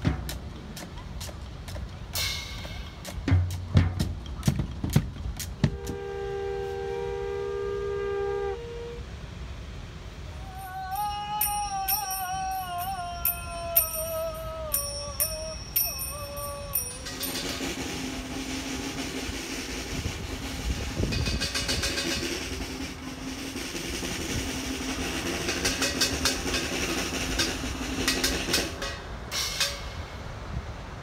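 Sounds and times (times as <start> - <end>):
sharp percussive strikes: 2.1 - 6.0, 11.4 - 30.3
wavering melodic note: 10.6 - 19.2
dense rattling noise: 17.0 - 30.1.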